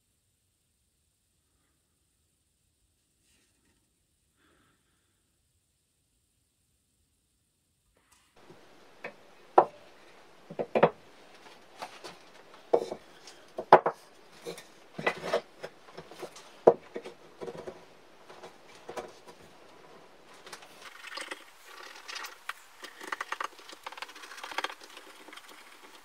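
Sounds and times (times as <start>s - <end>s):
wooden parts knocking together: 10.5s - 11.0s, 11.9s - 19.4s.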